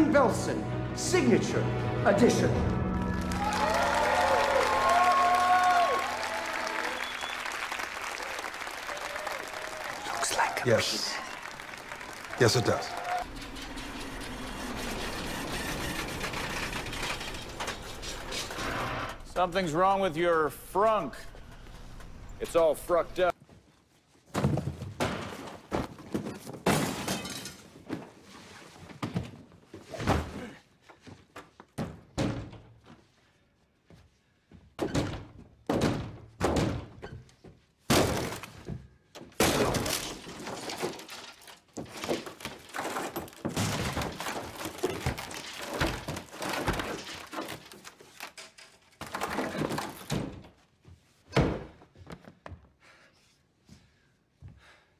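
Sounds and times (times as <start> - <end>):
breaking sounds: 26.4 - 27.9, 37.9 - 38.7, 39.4 - 50.4.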